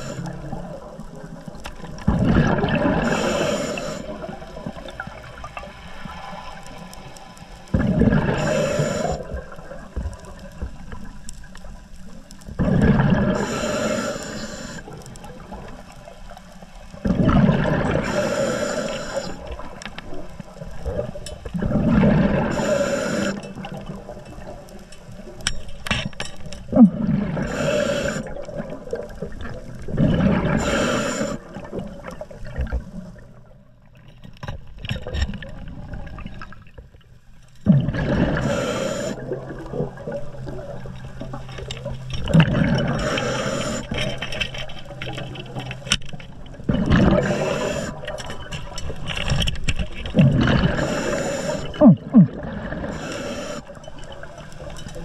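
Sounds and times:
regulator bubbles rushing: 0:02.0 - 0:03.2.

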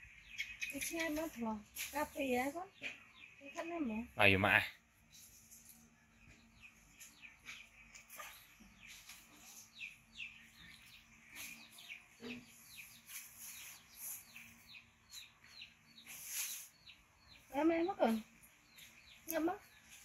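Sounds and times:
faint bird chirping: 0:00.0 - 0:20.0
rustling noise: 0:12.6 - 0:15.2, 0:16.0 - 0:16.9.

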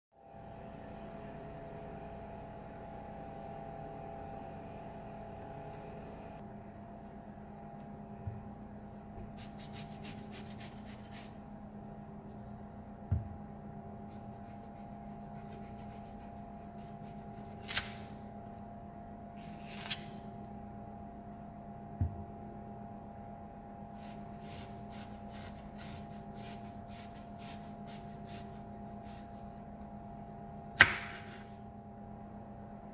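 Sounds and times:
steady background hum: 0:00.2 - 0:32.9
knife peeling onion on board: 0:09.3 - 0:11.4, 0:14.1 - 0:18.2, 0:19.4 - 0:20.2, 0:24.0 - 0:29.6, 0:30.6 - 0:31.5.

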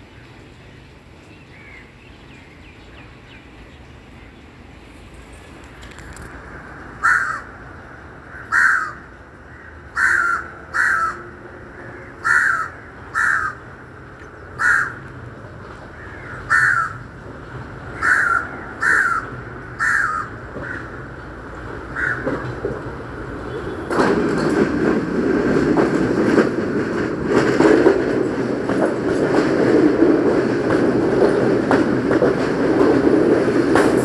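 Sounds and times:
train rumble: 0:00.0 - 0:34.0
bird calling: 0:08.3 - 0:13.7, 0:14.6 - 0:15.1, 0:15.9 - 0:17.1, 0:18.0 - 0:21.0, 0:21.9 - 0:22.5.

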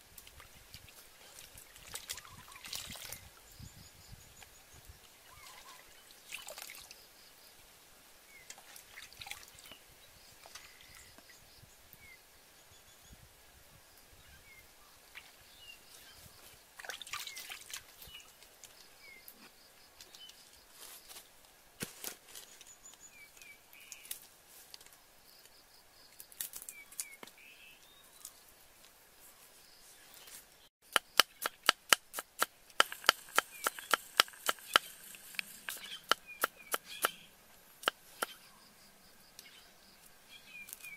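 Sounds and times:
bird chirps: 0:32.9 - 0:37.4.

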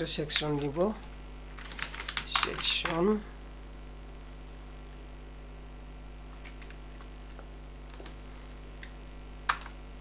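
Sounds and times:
electrical mains hum: 0:00.0 - 0:10.0
keyboard keystroke clicks: 0:08.8 - 0:09.8.

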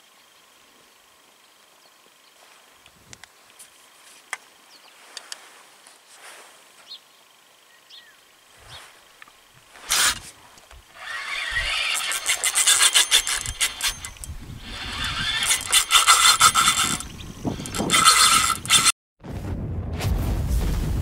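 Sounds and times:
fishing reel rasping and clicking: 0:09.8 - 0:10.3, 0:10.9 - 0:19.0.

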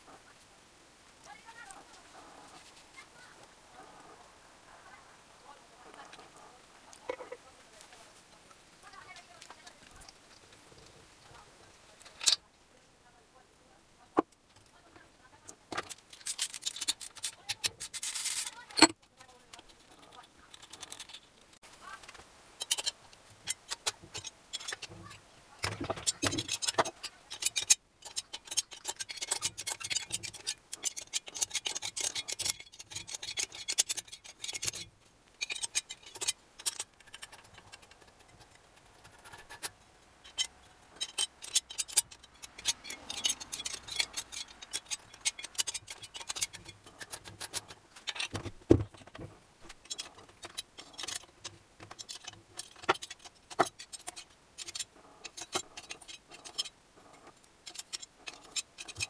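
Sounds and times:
metal tools clinking and rattling: 0:12.0 - 0:12.4, 0:15.8 - 0:19.0, 0:22.6 - 0:59.0.

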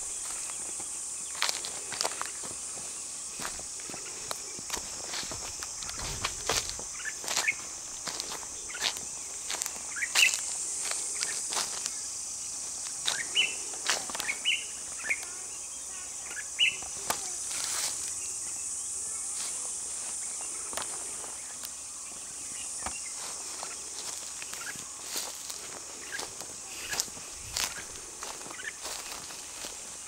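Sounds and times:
footsteps in dry grass: 0:00.0 - 0:16.0, 0:16.6 - 0:30.0
insects droning: 0:00.0 - 0:30.0
bird chirping: 0:13.1 - 0:13.6, 0:14.2 - 0:15.2.

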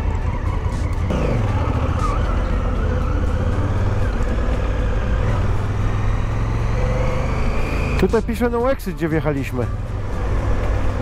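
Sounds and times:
motorcycle engine running: 0:00.0 - 0:08.1
road and wind noise: 0:00.0 - 0:11.0.

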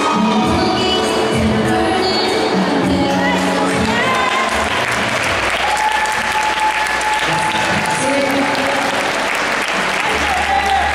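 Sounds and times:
dance music: 0:00.0 - 0:10.9
audience applause: 0:03.8 - 0:10.9.

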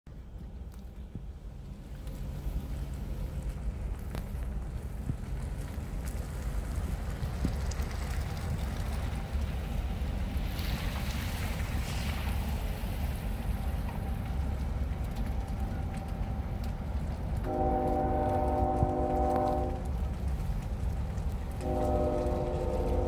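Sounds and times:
low outdoor rumble: 0:00.1 - 0:23.0
train horn chord: 0:17.4 - 0:20.0, 0:21.6 - 0:23.0.

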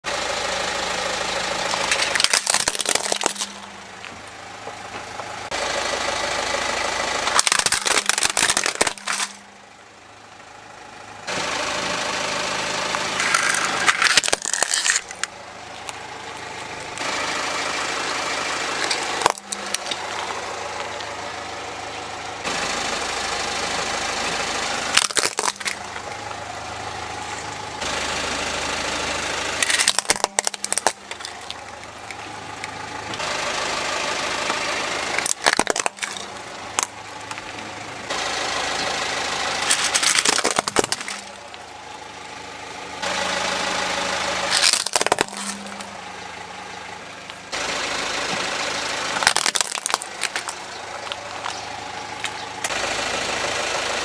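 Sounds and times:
car engine idling: 0:00.0 - 0:54.0
plastic toys cracking and crunching: 0:01.7 - 0:04.2, 0:07.2 - 0:09.4, 0:12.9 - 0:17.1, 0:18.8 - 0:21.1, 0:24.9 - 0:26.1, 0:29.6 - 0:33.2, 0:35.1 - 0:37.6, 0:39.6 - 0:41.7, 0:44.4 - 0:46.0, 0:49.1 - 0:52.8.

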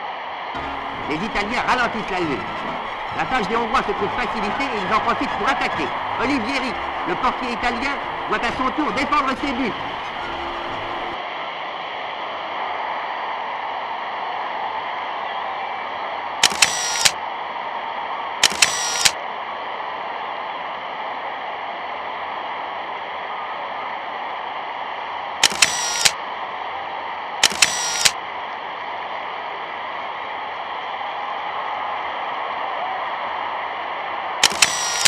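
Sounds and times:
bursts of sharp clicks: 0:00.6 - 0:11.2, 0:16.4 - 0:17.2, 0:18.4 - 0:19.2, 0:25.4 - 0:26.2, 0:27.4 - 0:28.2, 0:34.4 - 0:35.0.

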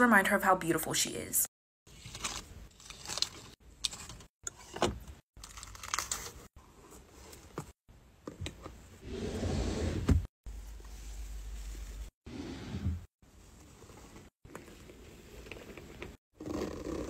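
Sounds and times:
drawer sliding open: 0:09.0 - 0:10.3, 0:12.3 - 0:13.1.

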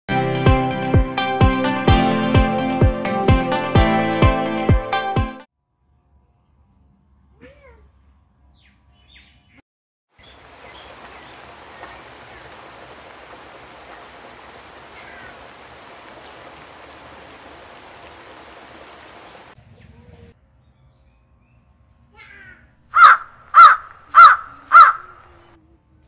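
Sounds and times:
steady rushing hiss: 0:10.2 - 0:19.6.

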